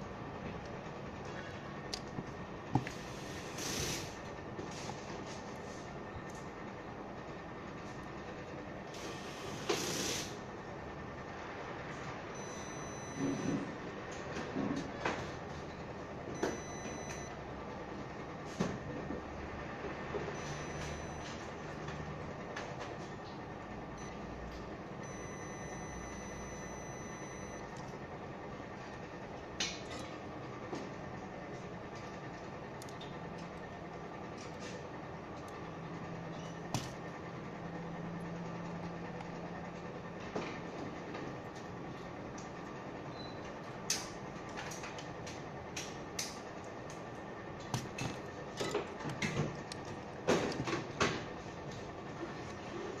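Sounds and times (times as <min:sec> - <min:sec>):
steady background noise: 0:00.0 - 0:53.0
workbench background noise: 0:00.4 - 0:06.5, 0:11.9 - 0:17.4, 0:18.4 - 0:23.2, 0:23.9 - 0:28.0.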